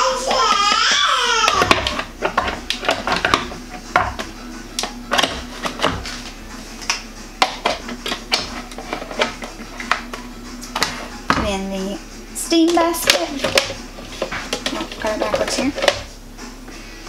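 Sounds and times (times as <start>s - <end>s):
plastic parts clicking and knocking: 0.5s - 6.2s.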